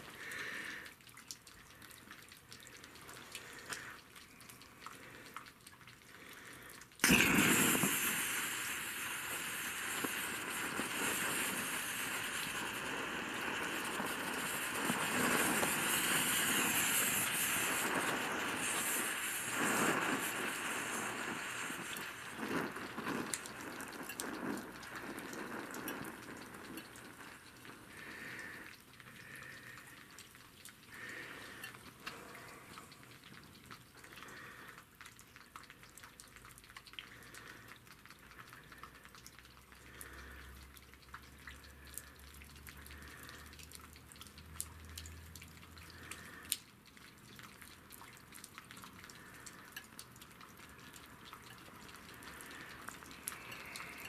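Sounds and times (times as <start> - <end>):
faint crackles and ticks: 0.0 - 54.0
stove flame hissing: 7.0 - 34.7, 49.1 - 54.0.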